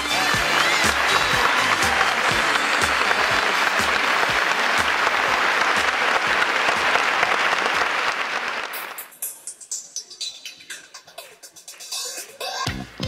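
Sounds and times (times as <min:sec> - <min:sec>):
audience applause: 0:00.0 - 0:09.1.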